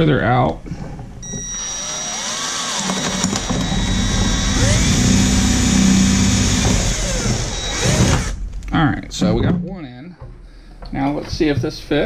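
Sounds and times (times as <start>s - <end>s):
cordless drill boring sheet metal: 1.2s - 8.4s.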